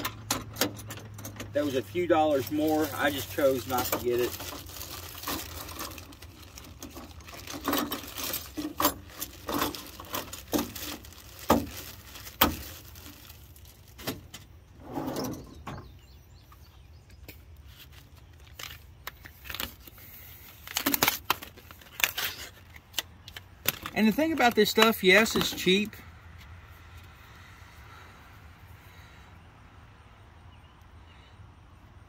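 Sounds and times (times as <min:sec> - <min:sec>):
toolbox drawer scraping open: 0:14.8 - 0:15.9.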